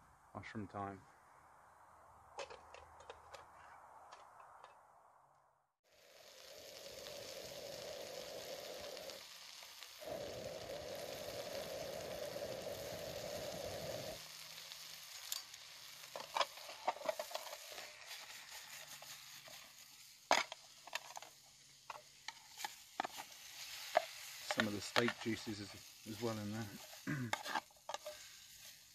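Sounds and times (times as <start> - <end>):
mushrooms sizzling in frying pan: 5.8 - 28.9
metal spoon scraping pan: 26.8 - 28.7.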